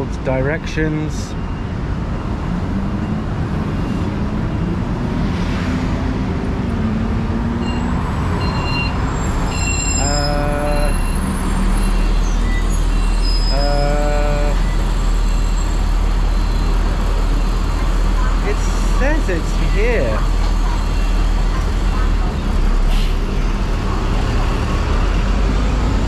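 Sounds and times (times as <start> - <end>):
passing buses and cars: 0.0 - 26.0
heavy vehicle passing: 2.4 - 26.0
pitched tones: 7.6 - 22.2.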